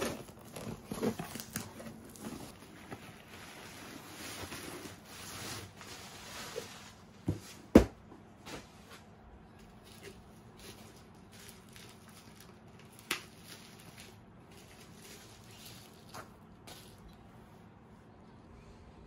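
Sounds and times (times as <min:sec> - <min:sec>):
scissors cutting wrap: 0:00.0 - 0:02.6
bubble wrap rustling and crinkling: 0:00.0 - 0:07.2, 0:09.5 - 0:17.2.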